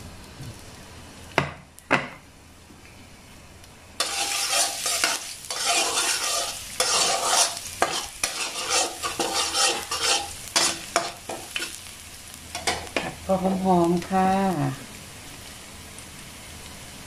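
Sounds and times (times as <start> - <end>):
garlic sizzling in hot oil: 3.4 - 17.0
metal spatula scraping a wok: 4.0 - 11.8.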